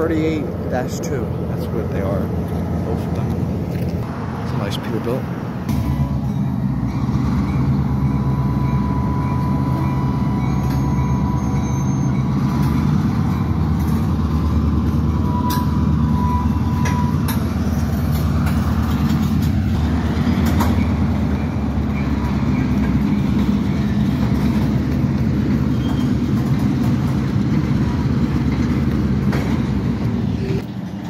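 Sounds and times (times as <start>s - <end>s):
diesel locomotives rumbling: 0.0s - 31.0s.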